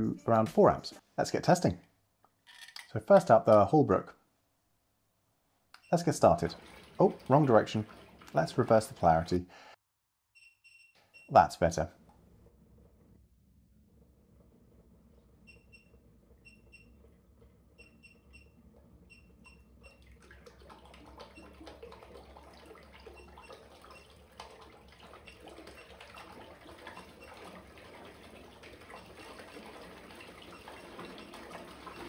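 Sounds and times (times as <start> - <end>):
water churning and splashing: 6.2 - 9.4, 18.6 - 32.0.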